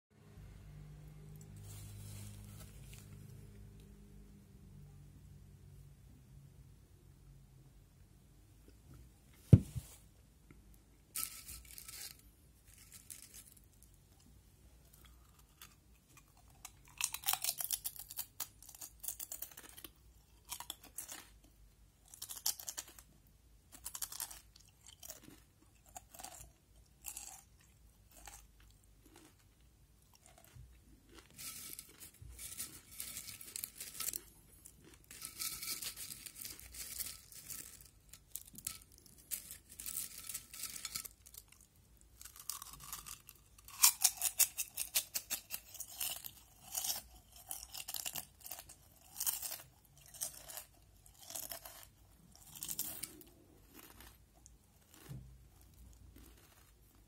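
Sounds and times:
crisps being chewed: 14.8s - 57.0s.

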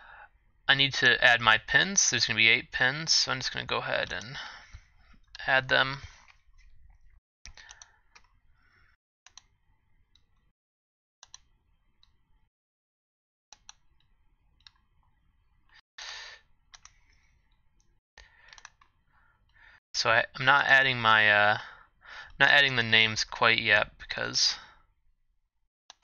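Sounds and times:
computer mouse clicks: 6.2s - 8.4s, 9.3s - 9.5s, 11.2s - 12.2s, 13.5s - 14.8s, 16.7s - 19.0s.

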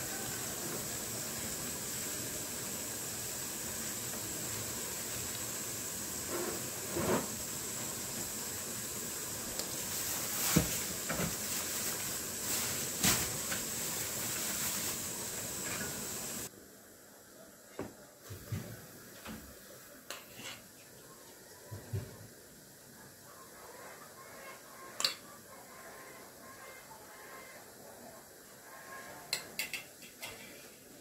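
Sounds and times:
oil sizzling in a frying pan: 0.0s - 16.5s.

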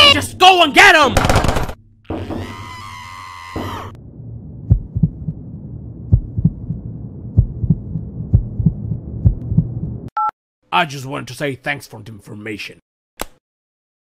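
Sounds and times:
cartoon heartbeat thumps: 3.6s - 10.1s
steady low drone: 3.9s - 10.1s.

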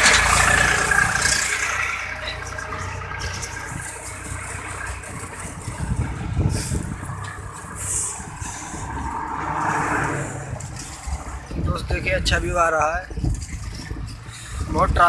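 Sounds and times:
road traffic: 0.0s - 15.0s
vehicle engine rumble: 0.0s - 15.0s.

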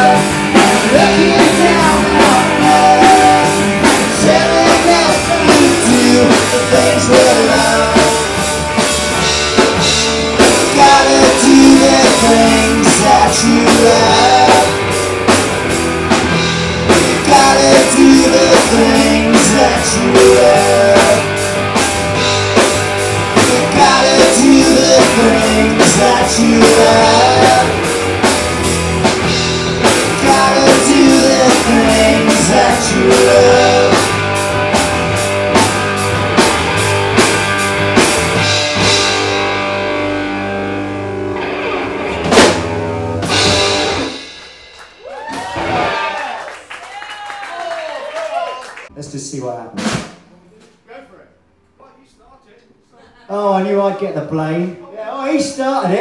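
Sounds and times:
person singing: 0.0s - 8.4s, 10.4s - 15.0s, 16.9s - 21.4s, 23.3s - 28.0s, 29.8s - 34.4s
distorted electric guitar: 0.0s - 44.9s
bass guitar: 0.0s - 46.3s
drum kit beat: 0.0s - 47.5s, 48.9s - 50.9s.

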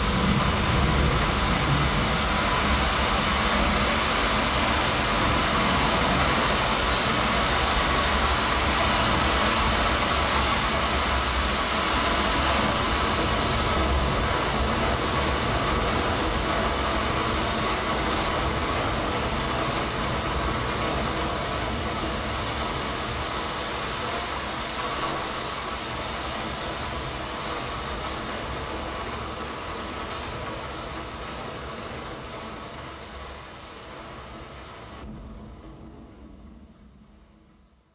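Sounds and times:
dense rumbling noise drone: 0.0s - 37.9s.

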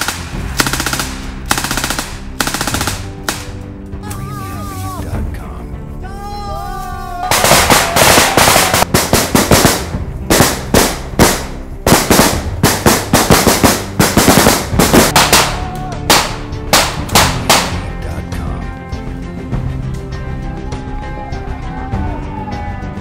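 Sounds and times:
automatic gunfire: 0.0s - 3.4s
background music: 0.0s - 23.0s.

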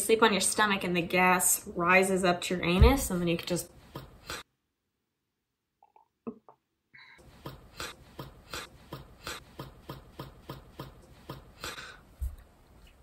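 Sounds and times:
faint rhythmic tapping: 2.8s - 4.4s, 7.2s - 13.0s.

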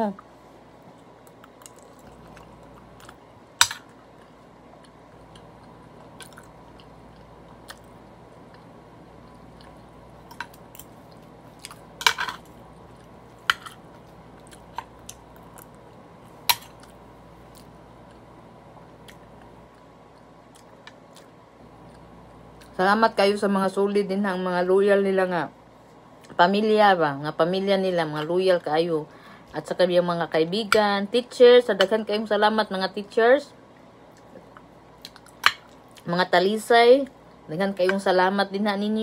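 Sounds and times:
person chewing: 0.8s - 18.3s, 19.0s - 22.8s, 33.8s - 36.0s.

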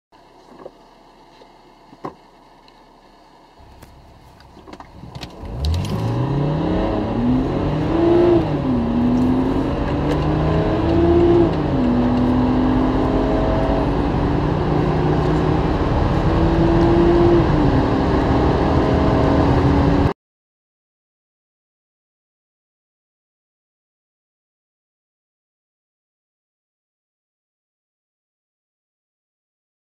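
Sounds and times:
car engine accelerating hard: 3.6s - 20.2s.

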